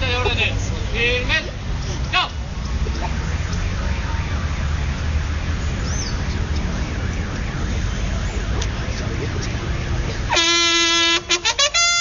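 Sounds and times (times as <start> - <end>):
bugle-like horn tones: 10.3 - 12.0.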